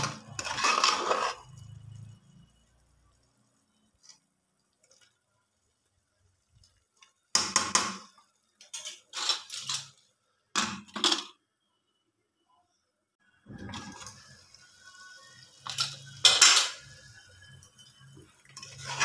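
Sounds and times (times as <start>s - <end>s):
steel ladle scraping metal pot: 0.0s - 1.8s, 17.7s - 19.0s.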